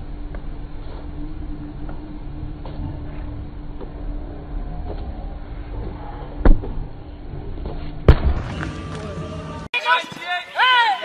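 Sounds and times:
low street rumble: 0.0s - 9.7s
football kicked hard: 8.1s - 8.8s.

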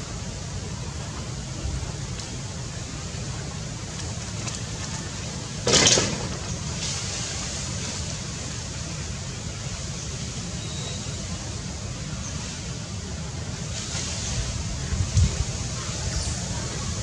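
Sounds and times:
loud rush of noise: 0.0s - 17.0s
wind rumble on microphone: 13.2s - 17.0s.

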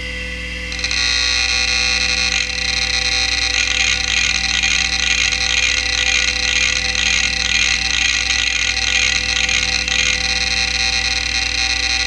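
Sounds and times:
hard drive whine: 0.0s - 12.0s
hard drive heads chattering: 0.7s - 12.0s.

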